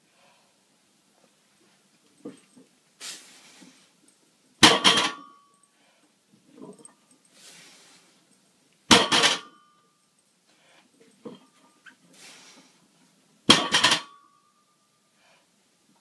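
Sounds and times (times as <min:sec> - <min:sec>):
weight plates clanking: 0:08.9 - 0:09.6, 0:13.5 - 0:14.2.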